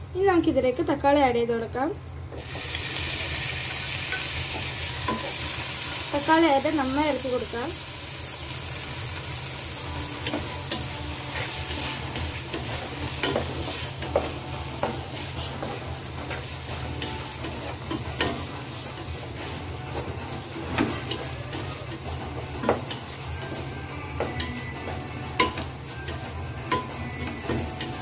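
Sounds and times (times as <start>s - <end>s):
vegetables sizzling in a pot: 0.0s - 28.0s
spatula scraping and knocking pot: 10.1s - 28.0s.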